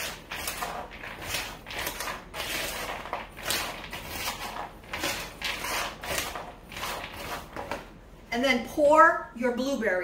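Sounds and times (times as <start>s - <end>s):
spoon tossing berries in bowl: 0.0s - 8.0s.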